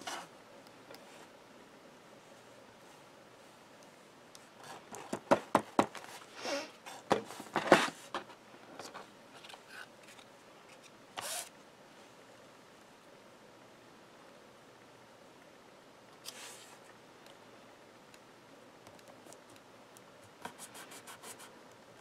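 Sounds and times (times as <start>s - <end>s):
small clicks and taps: 18.8s - 20.1s.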